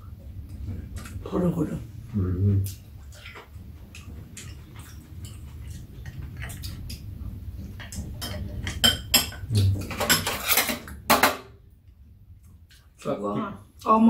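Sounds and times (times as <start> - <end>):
metal utensils clicking against bowls: 7.8 - 11.0.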